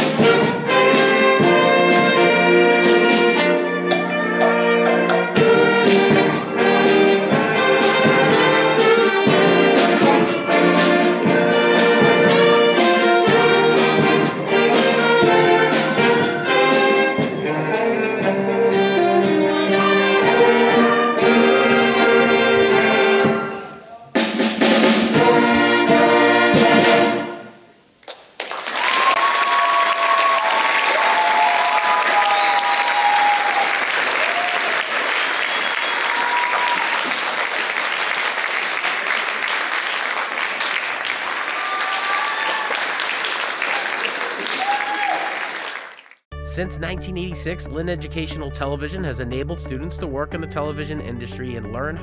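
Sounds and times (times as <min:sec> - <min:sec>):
ensemble playing strings and brass: 0:00.0 - 0:27.6
audience applause and cheering: 0:28.1 - 0:46.2.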